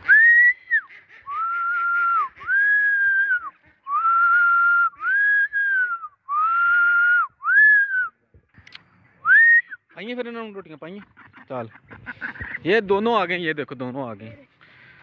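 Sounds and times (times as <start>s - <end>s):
person whistling long notes: 0.0s - 8.1s, 9.2s - 9.8s.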